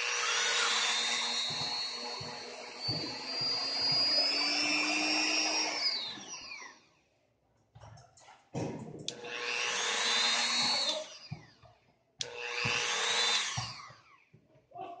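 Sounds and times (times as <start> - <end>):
rotary tool motor whining: 0.0 - 7.0, 9.1 - 11.6, 12.2 - 14.2.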